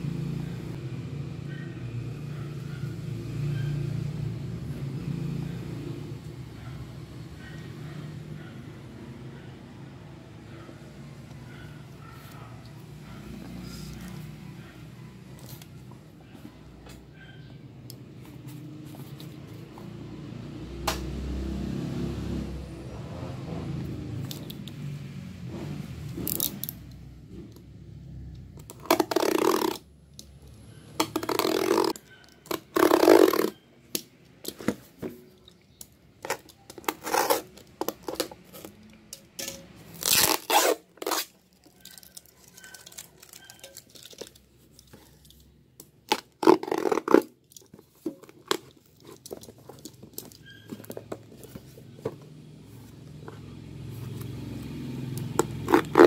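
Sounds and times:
handling clicks and rustles: 11.2 - 20.2, 28.4 - 56.0.

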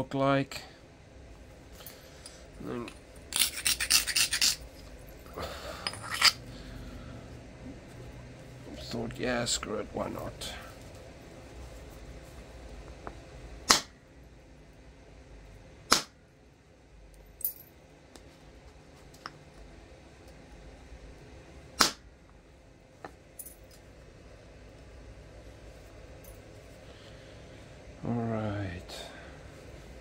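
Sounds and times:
antler punch cracking flint: 13.7 - 13.9, 15.9 - 16.1, 21.8 - 22.0.

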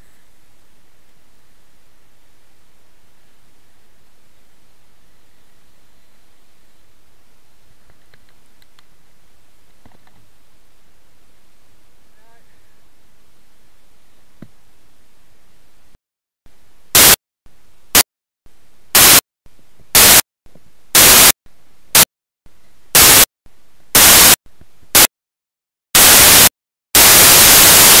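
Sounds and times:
faint background hiss: 0.0 - 16.9
hissing static blasts: 16.9 - 17.2, 18.9 - 19.2, 19.9 - 20.2, 20.9 - 21.4, 22.9 - 23.3, 24.0 - 25.1, 26.0 - 28.0.

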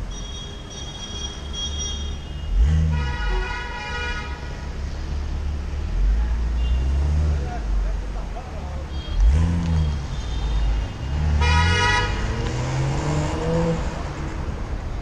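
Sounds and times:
traffic rumble: 0.0 - 15.0
wind: 0.0 - 15.0
vehicle horn honk: 0.1 - 4.6, 6.6 - 7.0, 8.9 - 12.3.

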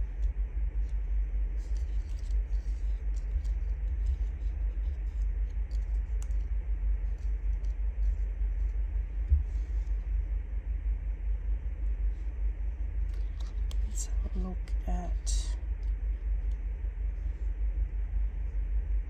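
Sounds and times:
low rumble: 0.0 - 19.0
paper labels rustling: 0.8 - 10.0.

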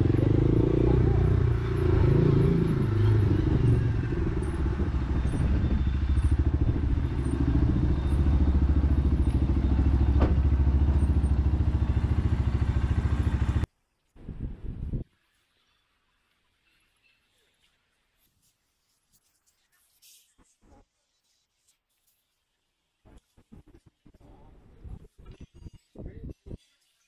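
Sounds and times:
motorcycle engine running: 0.0 - 13.7.

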